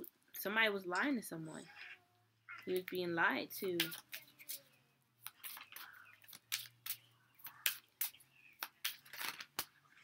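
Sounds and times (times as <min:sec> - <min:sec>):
cards being shuffled: 0:05.2 - 0:09.8.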